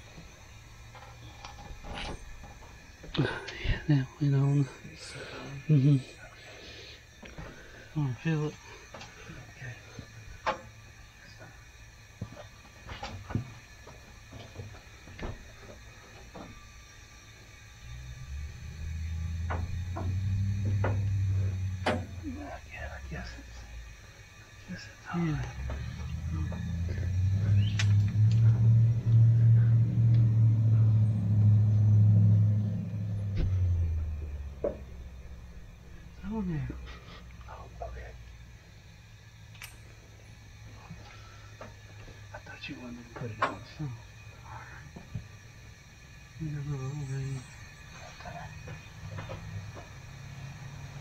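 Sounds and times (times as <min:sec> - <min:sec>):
motor humming: 0:00.0 - 0:51.0
sharp clicks: 0:27.6 - 0:29.3, 0:39.5 - 0:39.8.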